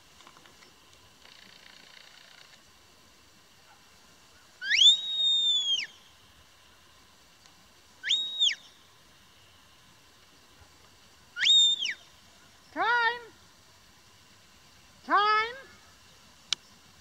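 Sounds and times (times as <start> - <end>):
herding whistle: 4.6 - 6.0, 8.0 - 8.7, 11.4 - 12.1.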